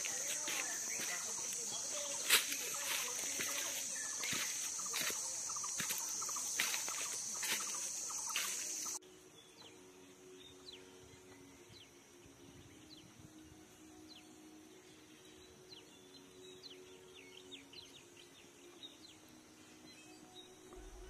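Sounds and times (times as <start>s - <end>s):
footsteps crunching dry leaves: 0.0s - 9.0s
high drone of insects: 0.0s - 21.0s.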